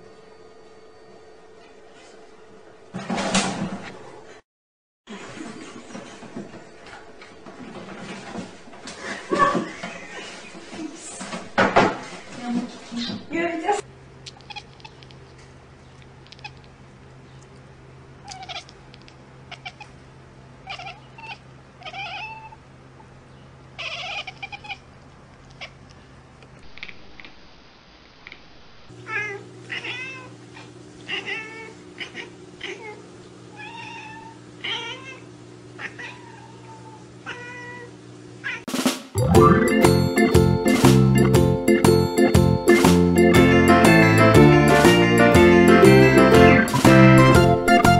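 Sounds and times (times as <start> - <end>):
cats meowing: 14.3 - 15.1, 18.2 - 20.0, 20.6 - 22.6, 23.8 - 24.9, 29.0 - 38.6.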